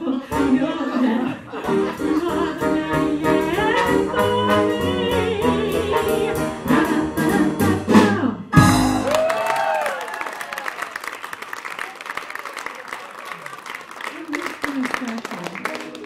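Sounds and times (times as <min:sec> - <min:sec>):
jazz combo playing swing: 0:00.4 - 0:09.2.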